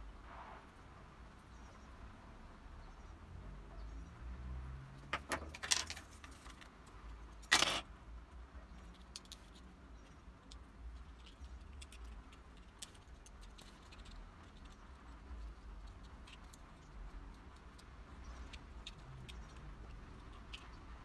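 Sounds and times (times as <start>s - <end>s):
small parts clicking and clinking: 5.1s - 7.9s, 8.8s - 20.8s.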